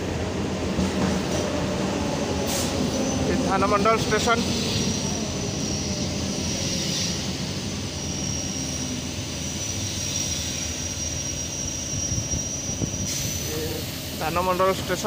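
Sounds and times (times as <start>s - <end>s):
train rumble and hum: 0.0s - 15.0s.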